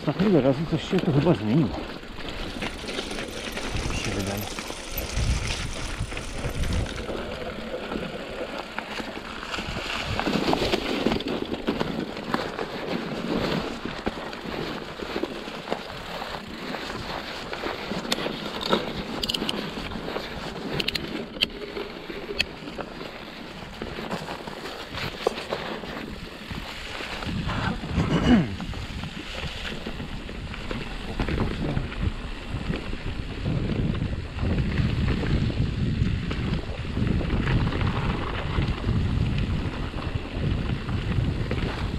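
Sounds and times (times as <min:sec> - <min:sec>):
wind buffeting microphone: 0:00.0 - 0:08.4, 0:25.9 - 0:41.9
bike rattling over bumps: 0:00.0 - 0:41.9
bike tyres rolling on trail: 0:00.0 - 0:41.9.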